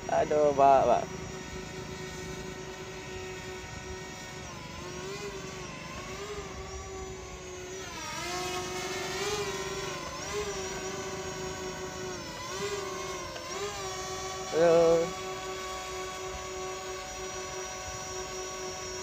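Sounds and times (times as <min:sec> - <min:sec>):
drone propellers whining: 0:00.0 - 0:19.0.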